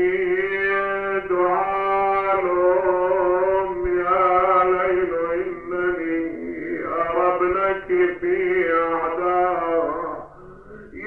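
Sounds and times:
man chanting mournful verses: 0.0s - 11.0s.

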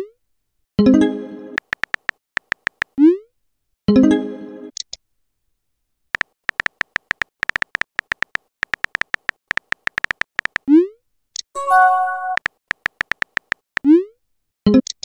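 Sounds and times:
keyboard tap clicks: 1.6s - 3.0s, 6.2s - 10.6s, 12.3s - 13.6s
chime: 11.6s - 12.4s
short message tone: 11.6s - 12.4s.

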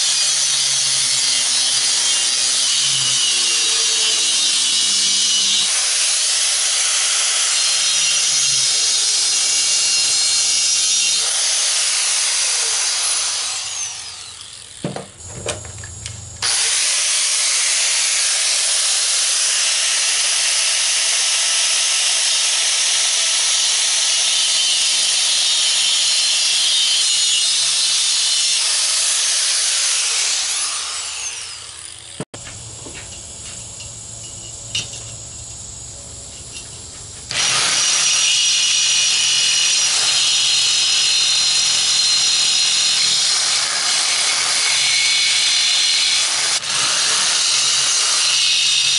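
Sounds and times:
angle grinder cutting steel: 0.0s - 14.9s, 16.0s - 32.3s, 37.3s - 48.9s
quieter power tool: 0.0s - 33.9s, 36.5s - 48.9s.

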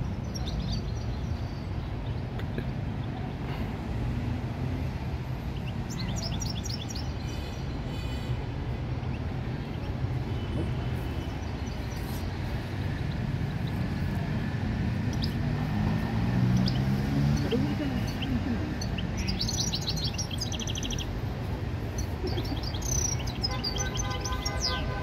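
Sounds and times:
city traffic rumble: 0.0s - 25.0s
finch chirping and trilling: 16.5s - 21.2s, 21.8s - 24.9s.

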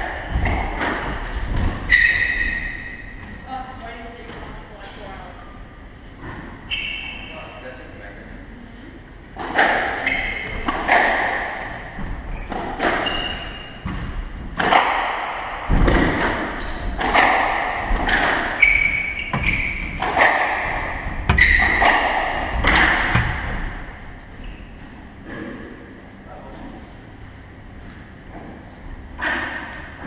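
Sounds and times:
squash ball hits: 0.0s - 3.3s, 9.4s - 24.1s
shoes squeaking on wooden floor: 18.5s - 20.0s, 20.7s - 22.2s.

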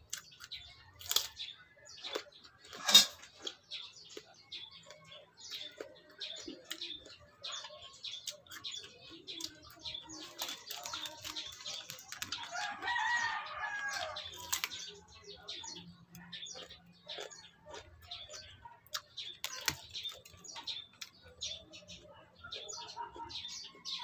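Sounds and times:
biting and chewing cucumber: 0.0s - 24.0s
rooster crowing: 12.5s - 14.2s.

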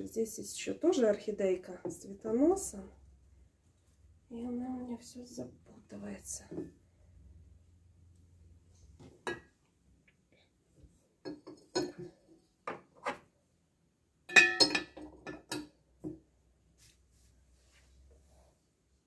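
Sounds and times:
glass ringing: 14.3s - 15.0s.

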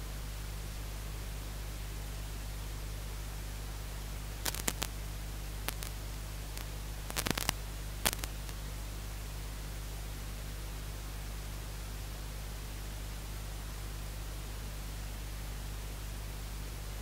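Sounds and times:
low electrical hum: 0.0s - 17.0s
steady hiss: 4.3s - 8.7s
short sharp clicks: 4.5s - 4.9s.

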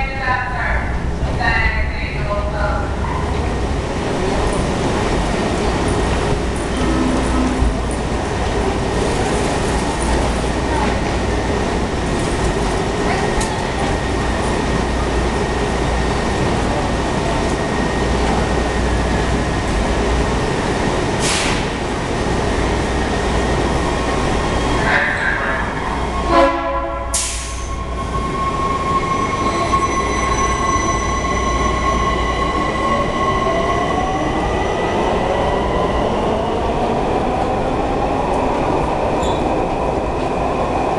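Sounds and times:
train cars running noise: 0.0s - 40.9s
loud signal tone: 6.7s - 7.9s.

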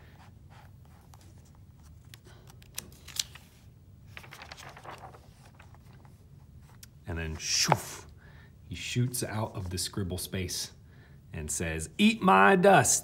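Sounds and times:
low room hum: 0.0s - 13.0s
paper pages rustling: 0.5s - 7.9s.

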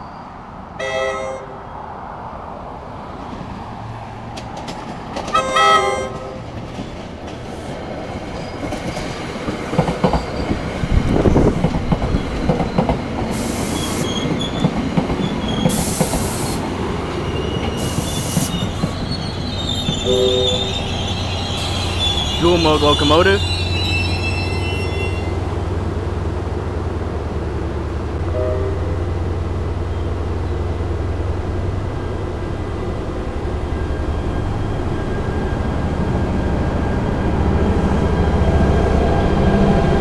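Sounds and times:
train horn blasts: 0.8s - 1.6s, 5.3s - 6.5s, 20.0s - 20.8s, 28.3s - 29.2s
train wheels clacking over rails: 4.3s - 20.1s
high hissing squeals: 13.3s - 14.6s, 15.4s - 25.5s.

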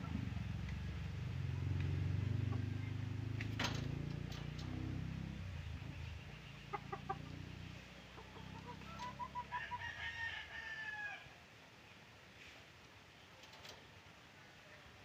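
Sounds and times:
low rumble: 0.0s - 6.6s
chicken clucks: 5.8s - 9.8s
distant rooster crowing: 8.8s - 11.4s.

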